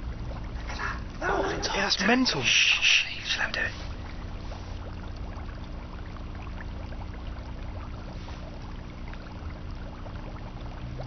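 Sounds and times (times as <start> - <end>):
aquarium hum: 0.0 - 11.0
small bubbling ticks: 0.0 - 11.0
water trickling: 0.0 - 11.0.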